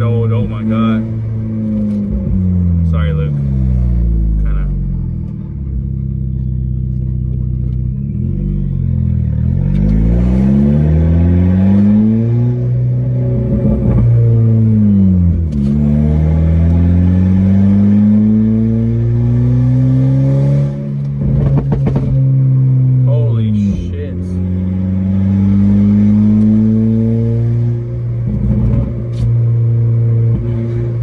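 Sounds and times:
car exhaust revving: 0:00.0 - 0:31.0.

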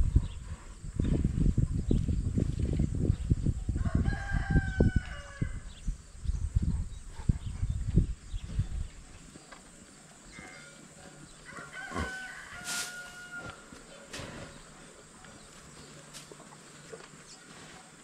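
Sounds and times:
low bumps and rumbles: 0:00.0 - 0:09.3
rooster crowing: 0:03.8 - 0:05.7, 0:11.4 - 0:13.7.

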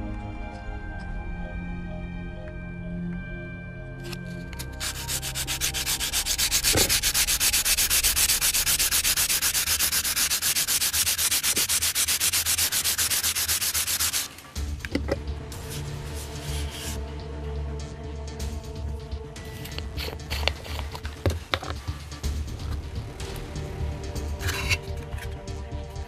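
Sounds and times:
background music: 0:00.0 - 0:26.0
sanding plastic: 0:04.6 - 0:14.5, 0:15.6 - 0:17.0, 0:19.5 - 0:21.8.

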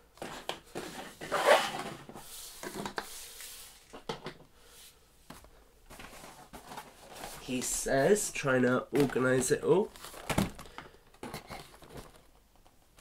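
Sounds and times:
packaging rustling: 0:05.9 - 0:13.0.

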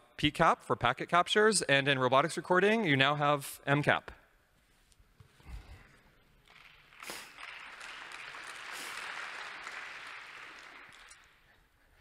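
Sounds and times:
audience applauding: 0:06.5 - 0:11.5.

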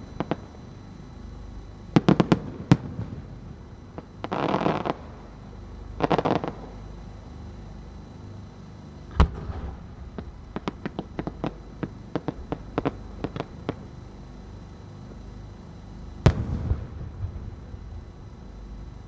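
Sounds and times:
sharp firework pops: 0:09.1 - 0:11.6, 0:16.2 - 0:16.8
firework booms: 0:16.2 - 0:17.6.

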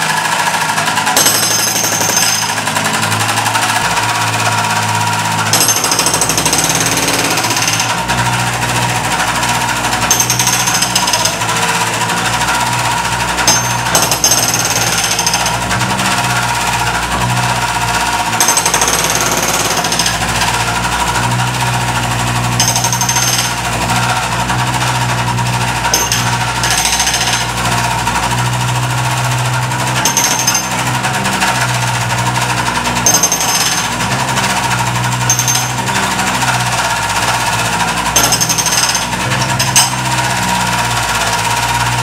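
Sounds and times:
hydraulic breaker hammering concrete: 0:00.0 - 0:42.0
loader engine drone: 0:00.0 - 0:42.0
sharp high clatter: 0:00.9 - 0:08.2, 0:21.9 - 0:28.4, 0:29.8 - 0:36.6.

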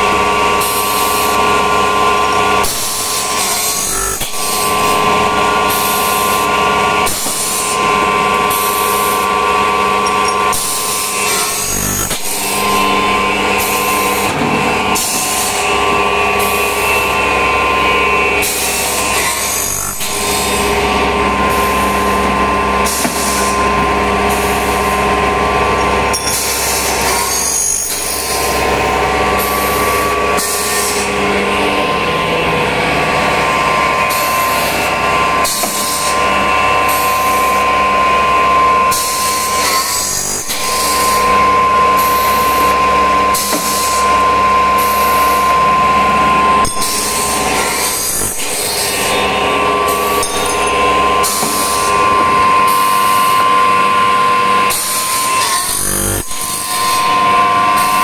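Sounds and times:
machine high whine: 0:00.0 - 0:58.0.

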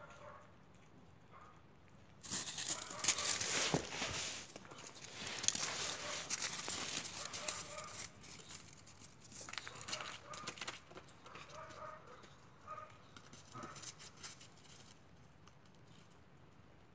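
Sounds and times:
paws crunching on snow: 0:02.2 - 0:14.9.

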